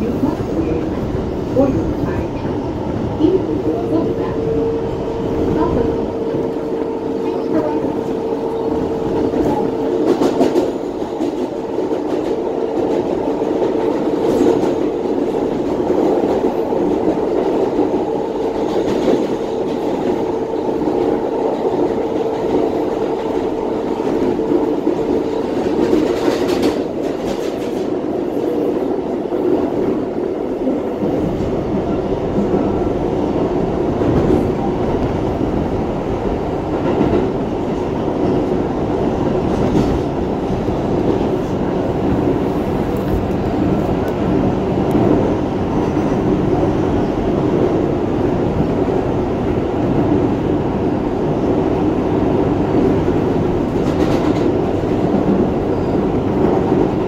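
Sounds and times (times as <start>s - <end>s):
subway train running noise: 0.0s - 57.0s
train wheels clacking: 7.8s - 28.0s.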